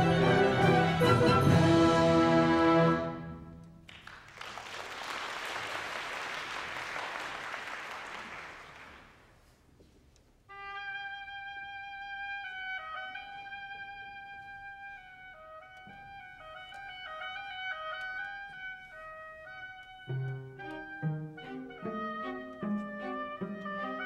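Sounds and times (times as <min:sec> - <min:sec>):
solo woodwind melody: 0:00.0 - 0:03.7, 0:10.5 - 0:24.0
audience applause: 0:03.9 - 0:09.2.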